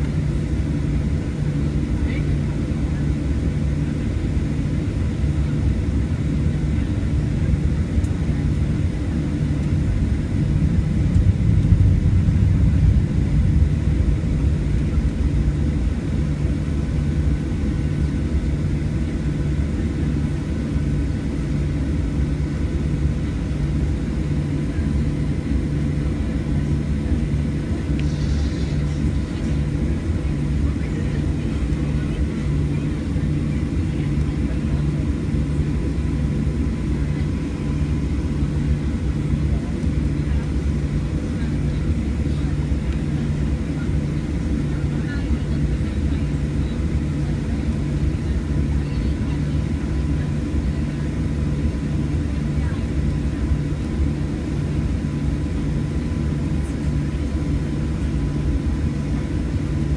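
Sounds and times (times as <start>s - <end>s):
jet engines rumbling: 0.0s - 59.9s
throbbing low hum: 7.4s - 18.8s.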